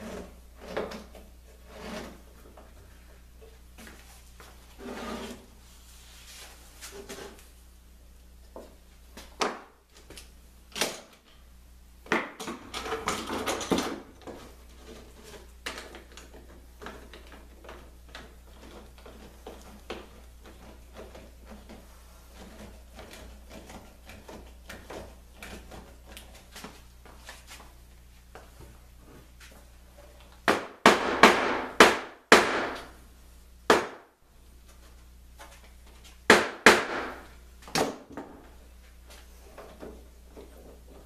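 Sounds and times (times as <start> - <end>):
mallet striking plywood: 30.5 - 32.9, 33.7 - 34.0, 36.3 - 38.0.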